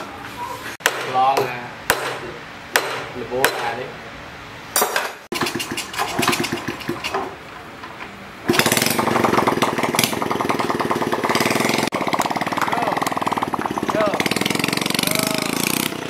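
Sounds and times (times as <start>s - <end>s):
motorcycle engine starting and running: 5.3s - 7.4s, 8.4s - 16.0s.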